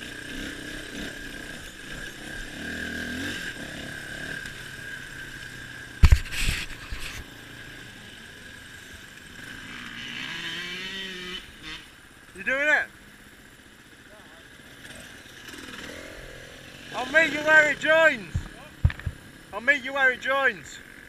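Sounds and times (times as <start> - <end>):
motorcycle engine revving: 0.0 - 21.0
sharp loud knocks: 18.3 - 19.2.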